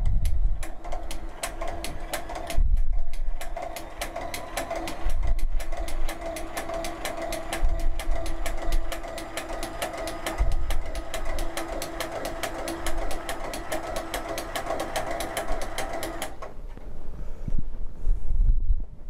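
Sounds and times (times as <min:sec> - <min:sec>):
linking machine humming and ticking: 0:00.0 - 0:16.6.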